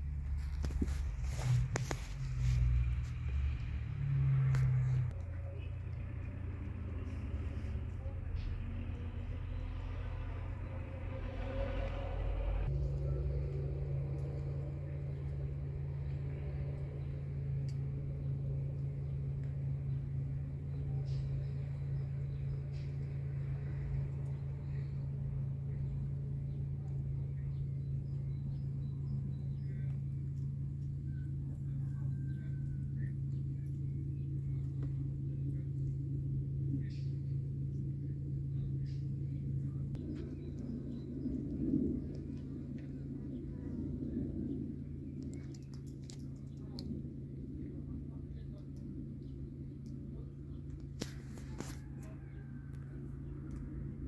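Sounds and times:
steady low hum: 0.0s - 54.0s
faint high chirps and clicks: 45.2s - 47.0s.

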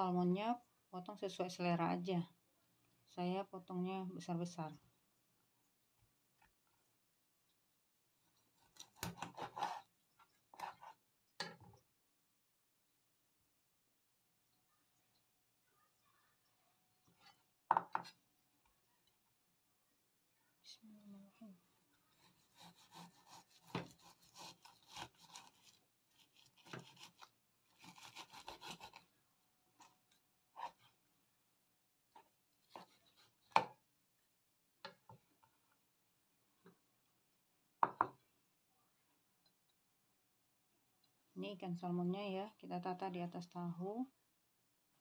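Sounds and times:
knife cutting fish on wooden board: 8.5s - 9.9s, 10.5s - 11.5s, 22.1s - 29.1s, 30.5s - 31.0s, 32.1s - 33.8s.

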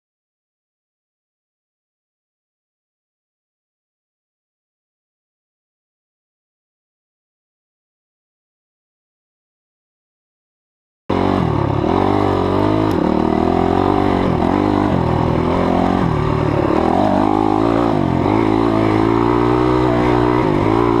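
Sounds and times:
dirt bike engine revving: 11.1s - 21.0s.

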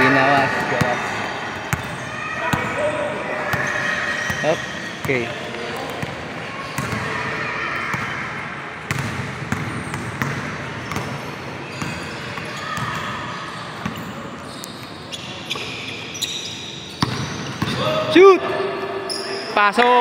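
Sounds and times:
background hubbub: 0.0s - 20.0s.

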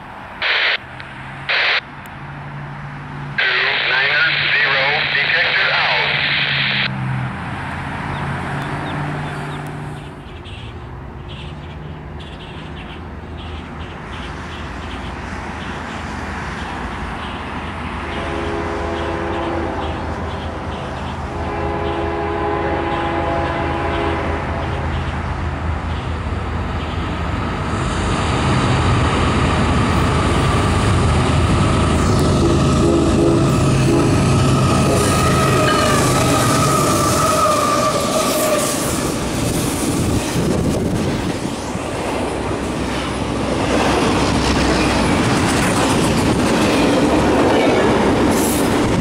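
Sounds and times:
diesel locomotive engine rumble: 0.0s - 49.0s
train air horn blasts: 18.0s - 20.0s, 21.3s - 24.8s, 32.7s - 38.9s.

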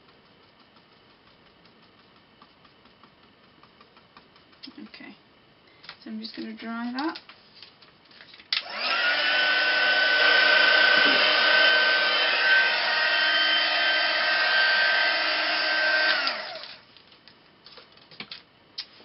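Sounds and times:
heat gun blowing with high whine: 8.6s - 16.8s.

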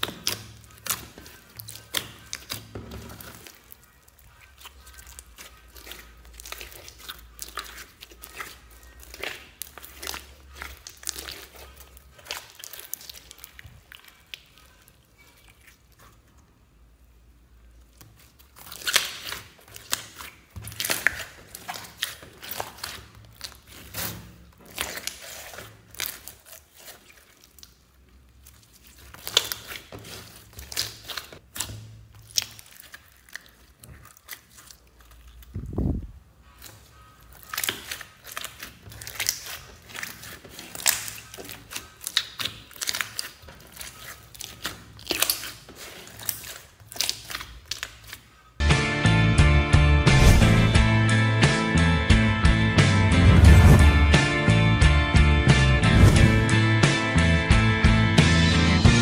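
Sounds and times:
slime clicking and popping: 0.0s - 11.6s, 18.1s - 27.8s, 37.3s - 48.2s
short low falling sound: 55.8s - 56.6s.

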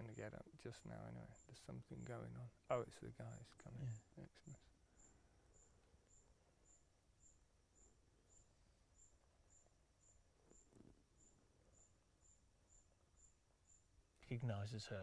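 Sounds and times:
cricket chirping: 0.0s - 15.0s.

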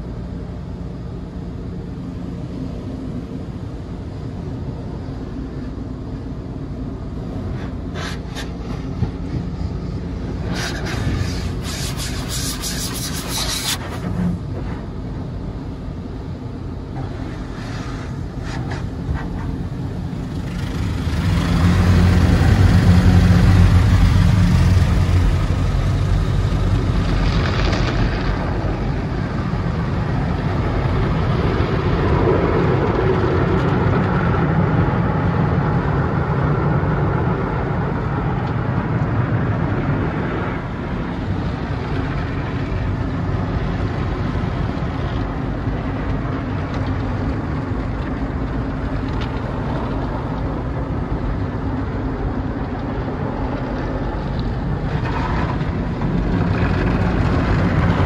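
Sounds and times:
low rumble of car wash: 0.0s - 58.0s
wash equipment working over car: 0.1s - 58.0s
hissing water spray: 7.5s - 8.9s, 10.3s - 14.4s.

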